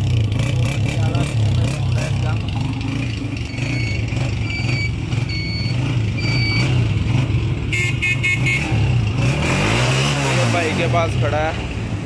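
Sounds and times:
motorcycle engine idling: 0:00.0 - 0:08.6.

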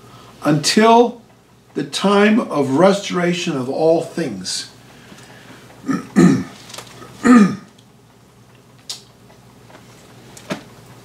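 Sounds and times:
man clearing his throat: 0:05.8 - 0:07.8
page rustling: 0:06.6 - 0:07.1.

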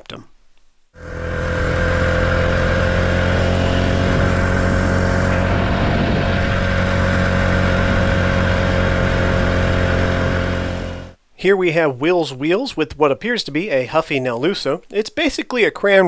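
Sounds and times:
small engine running: 0:01.0 - 0:11.2
wind and road rush: 0:01.0 - 0:11.2.

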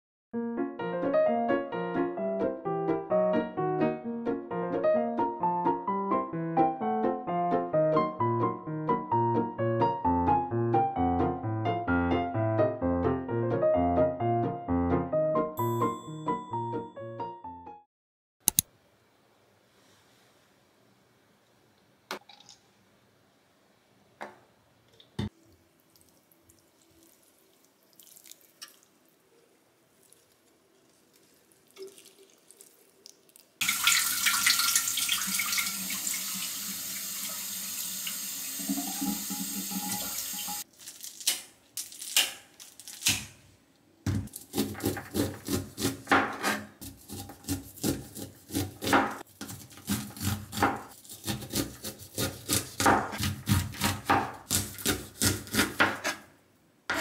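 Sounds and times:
rice washed by hand: 0:25.4 - 0:40.7
knife cutting on cutting board: 0:44.1 - 0:56.3.

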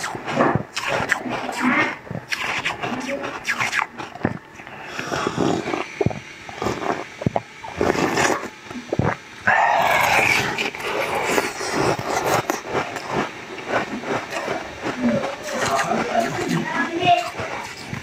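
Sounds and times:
loud dense noise: 0:00.0 - 0:18.0
lip smacks and sucking clicks: 0:02.3 - 0:06.7.

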